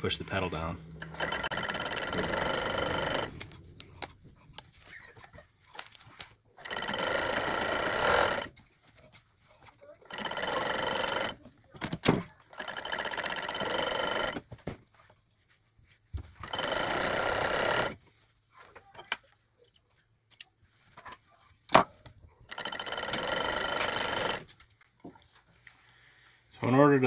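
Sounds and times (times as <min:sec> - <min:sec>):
sewing machine stitching: 0:01.0 - 0:04.1, 0:06.6 - 0:08.6, 0:09.9 - 0:14.5, 0:16.4 - 0:18.0, 0:22.5 - 0:24.6.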